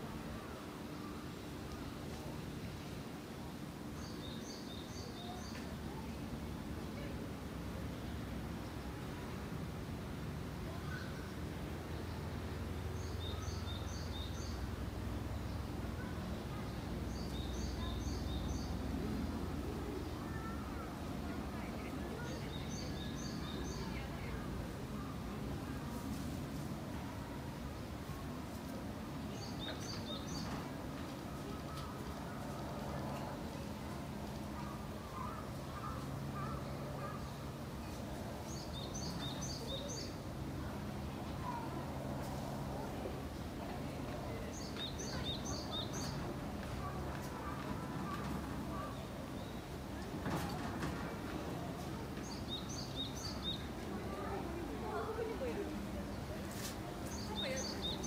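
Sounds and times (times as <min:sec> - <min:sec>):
songbird singing: 0:04.0 - 0:06.0, 0:12.9 - 0:14.7, 0:15.4 - 0:18.9, 0:21.6 - 0:25.1, 0:29.2 - 0:30.7, 0:34.6 - 0:40.2, 0:44.3 - 0:49.8, 0:51.9 - 0:55.4, 0:57.0 - 0:58.0.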